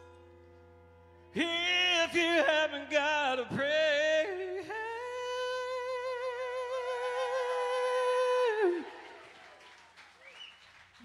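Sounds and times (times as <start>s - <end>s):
man singing long high note: 1.4s - 9.1s.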